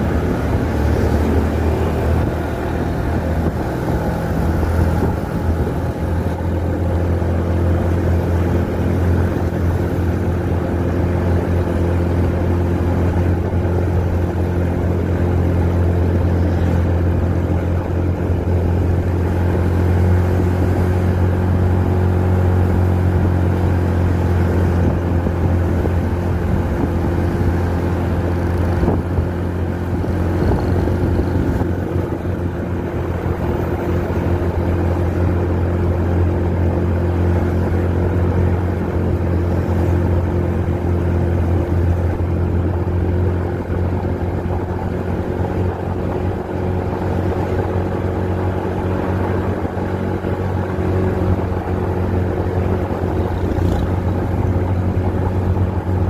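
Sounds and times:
motorcycle engine humming: 0:00.0 - 0:56.0.

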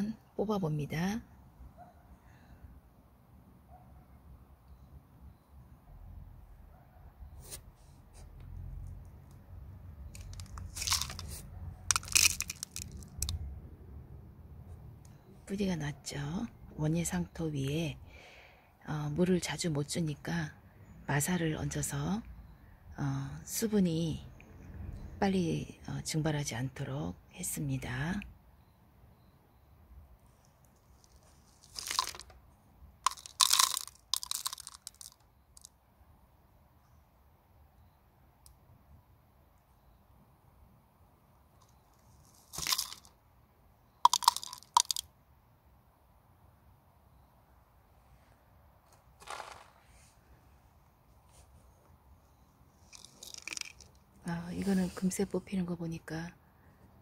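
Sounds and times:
soil and grit crunching: 0:10.1 - 0:13.4, 0:31.0 - 0:32.3, 0:41.7 - 0:43.1, 0:49.2 - 0:49.8, 0:52.9 - 0:53.9
grit and soil crunching: 0:10.2 - 0:13.3, 0:49.2 - 0:49.8.

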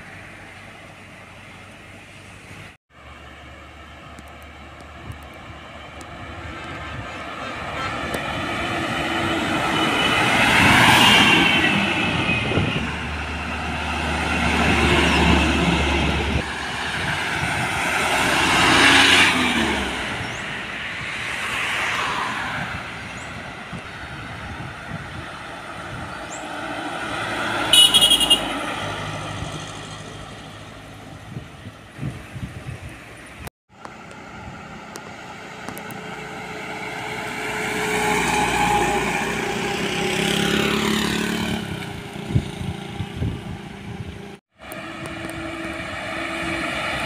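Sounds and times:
trucks driving past: 0:00.0 - 0:47.0
truck horn blast: 0:06.8 - 0:08.2, 0:27.6 - 0:28.8, 0:44.8 - 0:47.0.

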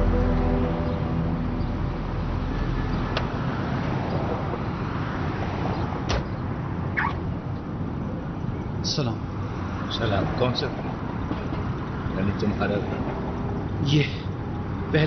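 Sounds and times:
street traffic: 0:00.0 - 0:15.0
car door opening and shutting: 0:06.0 - 0:07.2.

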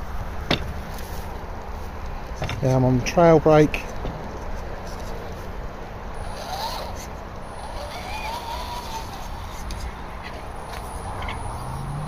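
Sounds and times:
electric motor and gears whirring: 0:03.8 - 0:12.0.

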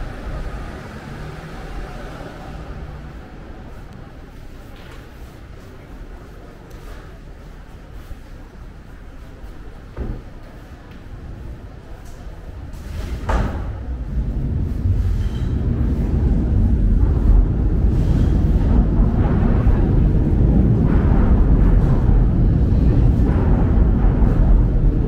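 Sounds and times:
crowd chatter: 0:00.0 - 0:25.0
heavy low rumble: 0:11.1 - 0:25.0.

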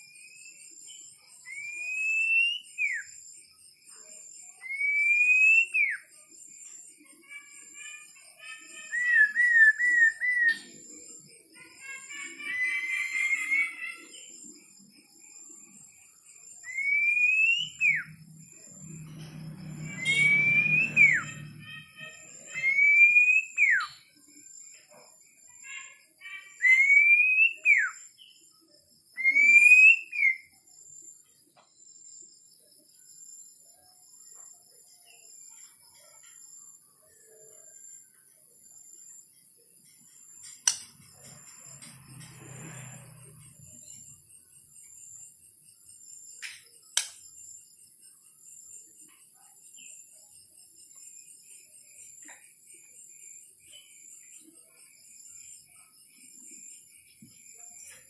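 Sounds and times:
bird singing whistles and warbles: 0:00.0 - 0:03.3, 0:04.5 - 0:06.8, 0:07.4 - 0:24.2, 0:25.6 - 0:31.0
rising whistles with downward slide: 0:16.6 - 0:24.0.

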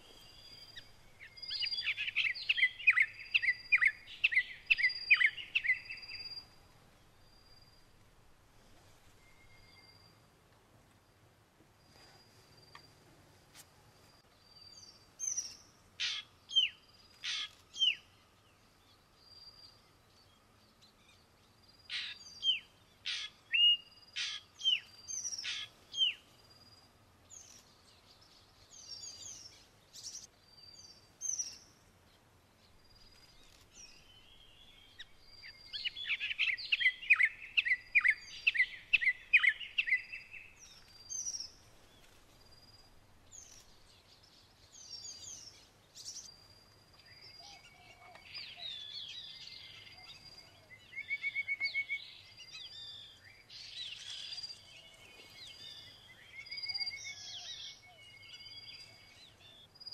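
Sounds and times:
sharp whistled bird calls: 0:00.0 - 0:06.6, 0:21.9 - 0:26.2, 0:33.0 - 0:41.6, 0:47.0 - 0:59.9
birds calling and singing: 0:00.0 - 0:08.0, 0:14.3 - 0:59.9.

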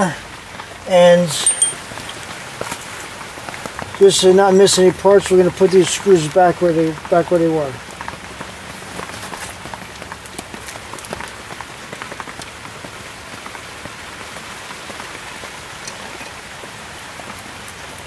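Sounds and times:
steady hiss: 0:00.0 - 0:10.2.

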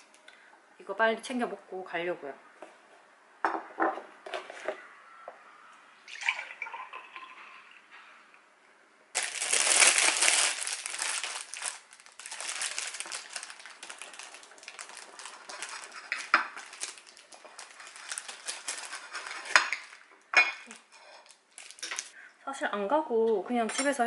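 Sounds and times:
plastic bag crinkling: 0:09.2 - 0:22.2.

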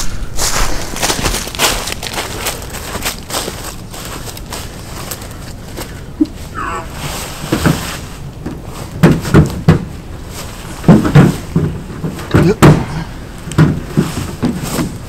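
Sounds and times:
men grunting and straining: 0:06.1 - 0:07.2, 0:12.3 - 0:13.2
knocks against truck: 0:09.0 - 0:09.9, 0:10.8 - 0:13.0, 0:13.6 - 0:15.0.

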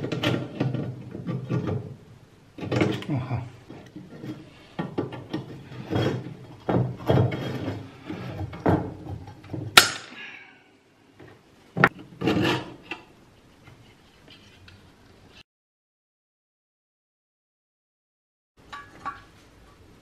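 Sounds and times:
metal scraping and handling: 0:00.0 - 0:09.7, 0:11.8 - 0:14.9.

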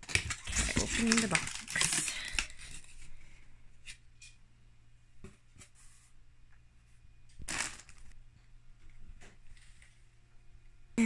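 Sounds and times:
crinkling of foil liner: 0:00.0 - 0:03.1, 0:07.4 - 0:08.1
plastic bags rustling: 0:00.0 - 0:03.2, 0:07.4 - 0:08.2.

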